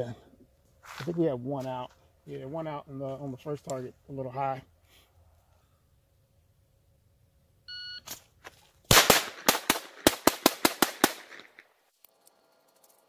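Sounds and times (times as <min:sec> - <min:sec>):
shot timer beep: 0:07.7 - 0:08.1
pistol shots: 0:08.9 - 0:11.6.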